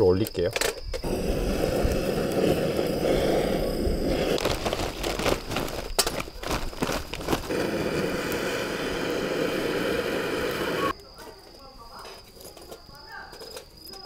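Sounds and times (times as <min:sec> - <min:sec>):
gas torch hissing: 0:01.0 - 0:05.5, 0:07.2 - 0:10.9.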